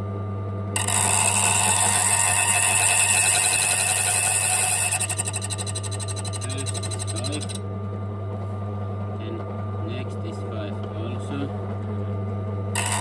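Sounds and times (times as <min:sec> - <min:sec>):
cutter wheel grinding key blank: 0:00.8 - 0:07.6, 0:12.8 - 0:13.0
motor humming: 0:00.8 - 0:07.7, 0:12.8 - 0:13.0.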